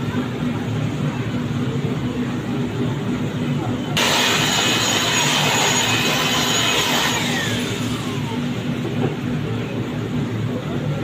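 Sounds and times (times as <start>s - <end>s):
steady machine hum: 0.0s - 11.0s
falling whine: 2.8s - 10.9s
loud hiss: 4.0s - 7.7s.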